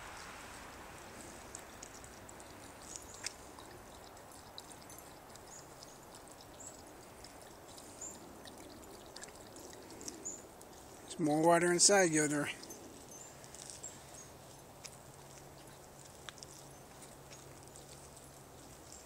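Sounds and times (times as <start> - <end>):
dog lapping water: 1.1 - 11.2.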